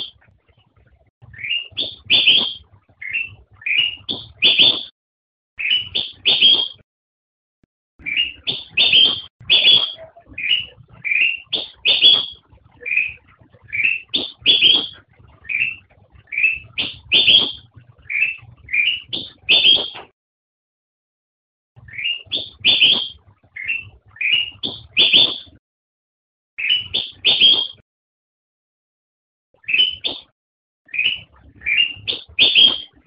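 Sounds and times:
bulbul singing: 1.3 - 4.9, 5.6 - 6.8, 8.0 - 20.1, 21.8 - 25.6, 26.6 - 27.8, 29.6 - 30.3, 30.9 - 33.0.

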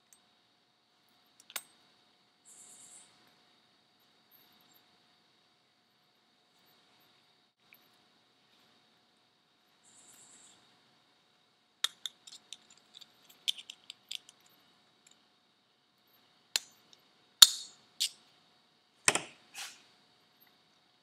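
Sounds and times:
metal tools clicking on metal parts: 11.8 - 14.5.

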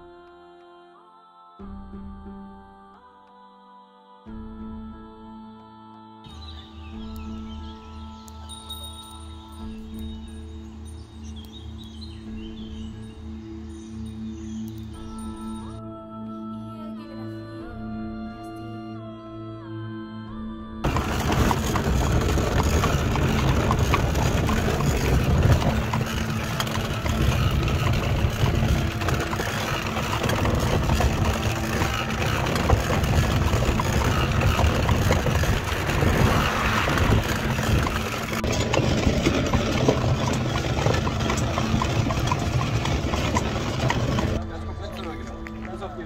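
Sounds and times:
cart frame clattering and rattling: 20.8 - 45.8
wagon wheels rumbling on pavement: 20.8 - 46.0.

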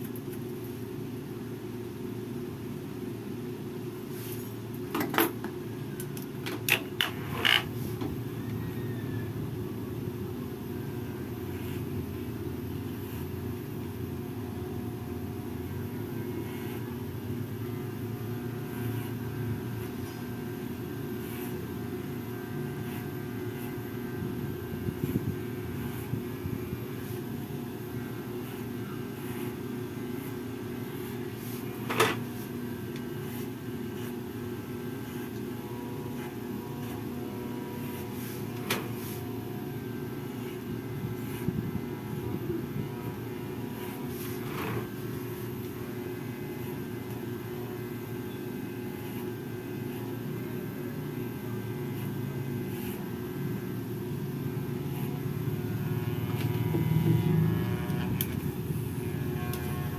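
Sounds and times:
electric hair clipper buzzing: 15.7 - 16.9, 17.7 - 59.9.

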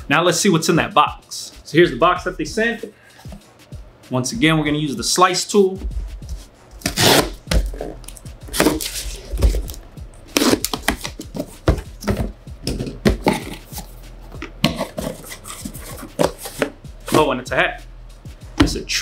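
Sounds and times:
box cutter slitting packing tape: 6.8 - 11.5, 14.6 - 16.7.

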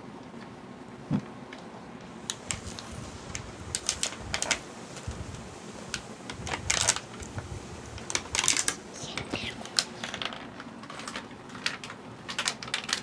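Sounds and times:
plastic packaging crinkling: 2.2 - 5.1, 6.0 - 7.3, 8.0 - 13.0.

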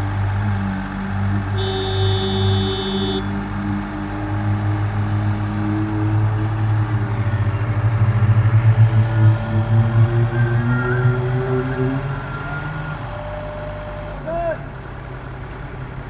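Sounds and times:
heavy diesel machinery running: 0.0 - 16.0.

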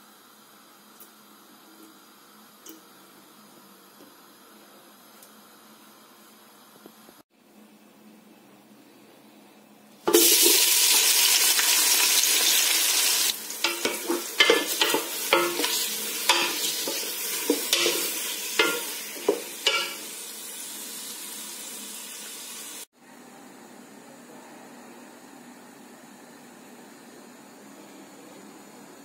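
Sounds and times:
onions sizzling in hot oil: 10.0 - 22.9.

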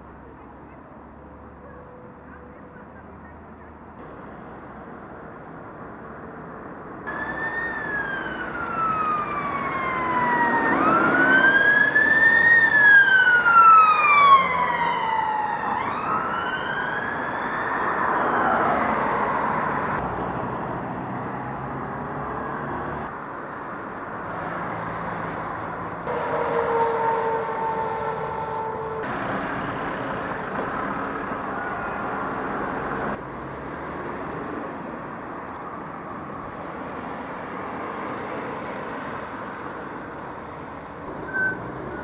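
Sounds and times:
road traffic noise: 0.0 - 42.0
emergency siren wailing: 7.1 - 20.0, 26.1 - 29.4.

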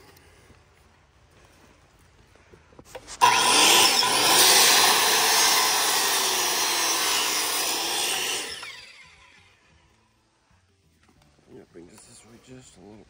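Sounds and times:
circular saw cutting wood: 2.9 - 9.7.

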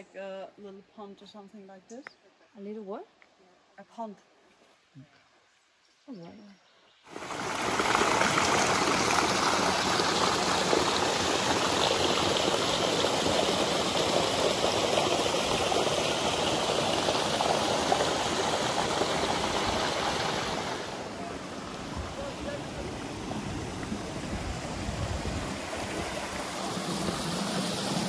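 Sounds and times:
running water rushing: 7.1 - 28.0.

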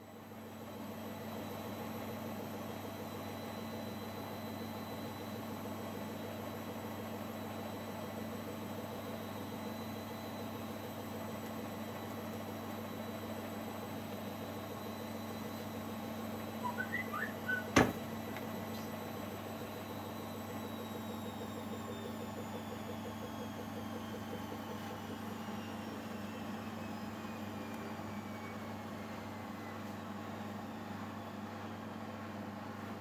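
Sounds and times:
low hum with high whine: 8.9 - 33.0
faint short squeaks: 16.6 - 18.0.

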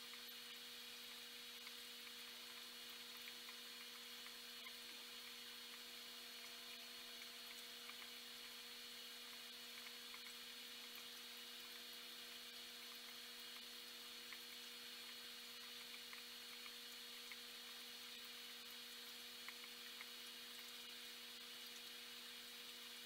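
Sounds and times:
aquarium pump hum and hiss: 0.0 - 23.0.

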